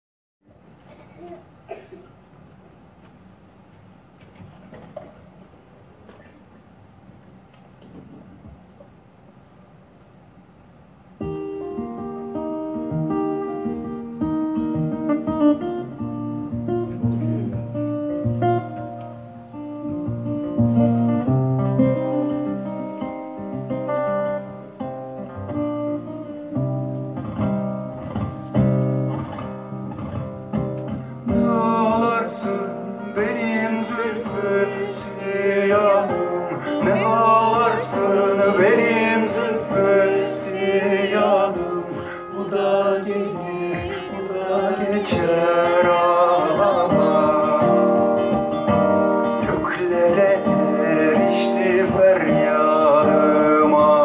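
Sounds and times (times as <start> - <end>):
acoustic guitar melody: 11.0 - 54.0
man singing: 31.2 - 48.5, 49.2 - 54.0.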